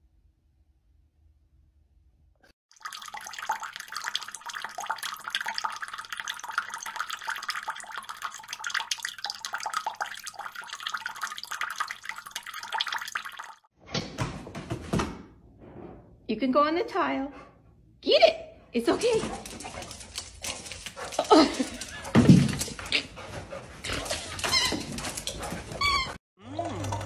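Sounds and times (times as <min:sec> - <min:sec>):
water trickling into bowl: 0:02.7 - 0:13.7.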